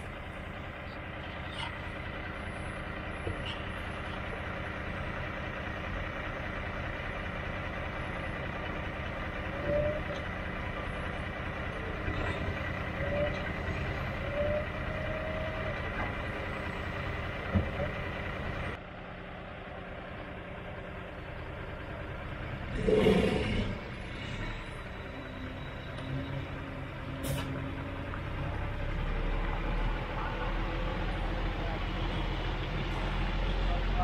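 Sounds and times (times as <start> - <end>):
truck diesel engine running: 0.0 - 34.0.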